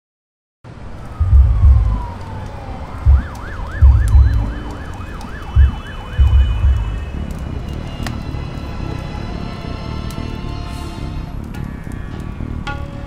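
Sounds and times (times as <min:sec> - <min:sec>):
fire crackling: 0:00.7 - 0:13.0
siren wailing: 0:00.9 - 0:12.4
deep rumbling thumps: 0:01.1 - 0:02.2, 0:03.0 - 0:08.2.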